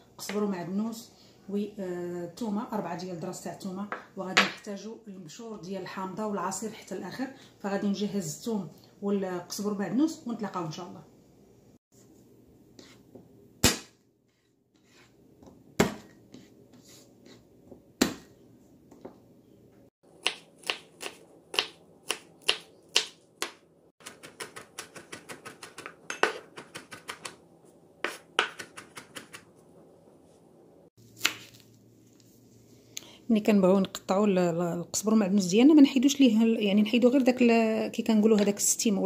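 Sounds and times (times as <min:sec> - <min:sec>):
knife chopping on wooden board: 0:20.2 - 0:27.4, 0:28.0 - 0:29.4.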